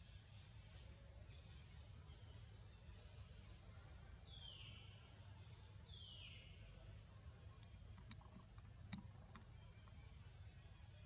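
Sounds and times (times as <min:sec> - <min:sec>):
faint clicks: 0:07.6 - 0:10.0.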